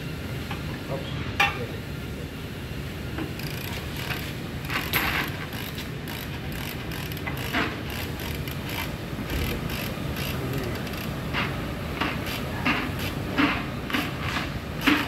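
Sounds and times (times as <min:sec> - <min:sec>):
workshop noise: 0:02.9 - 0:15.0
metal suspension parts clanking: 0:03.5 - 0:11.5.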